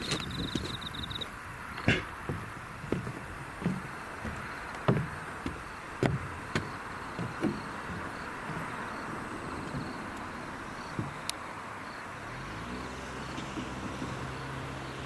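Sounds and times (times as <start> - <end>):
footsteps on wooden planks: 0.0 - 11.4.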